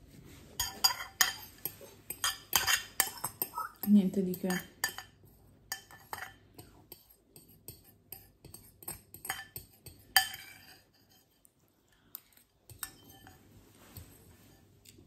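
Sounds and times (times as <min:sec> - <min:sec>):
metal utensil scraping glass bowl: 0:00.6 - 0:11.4, 0:12.7 - 0:14.6.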